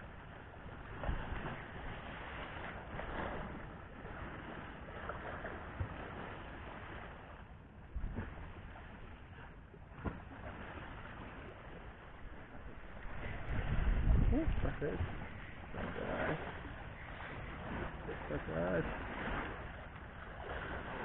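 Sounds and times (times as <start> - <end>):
wind on microphone: 0.0 - 21.0
sea waves washing on rocks: 8.0 - 21.0.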